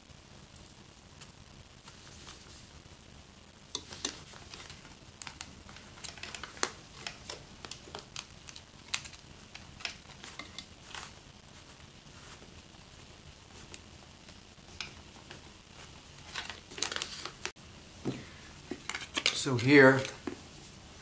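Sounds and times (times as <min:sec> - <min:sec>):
sharp clicks of plastic parts: 0:03.7 - 0:10.6
light scraping of small parts: 0:03.7 - 0:11.2, 0:16.2 - 0:20.7.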